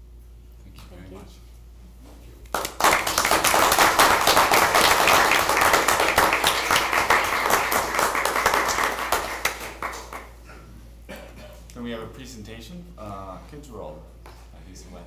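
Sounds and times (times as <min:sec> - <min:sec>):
audience applauding: 0:02.6 - 0:10.4.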